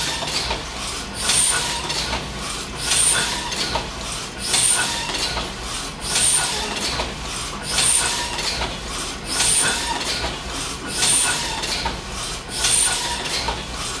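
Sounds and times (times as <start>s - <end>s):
printing press clattering: 0.0s - 14.0s.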